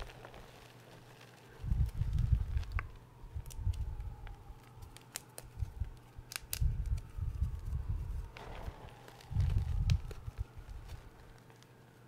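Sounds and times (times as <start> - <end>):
hands squeezing chalk powder: 0.0 - 12.0.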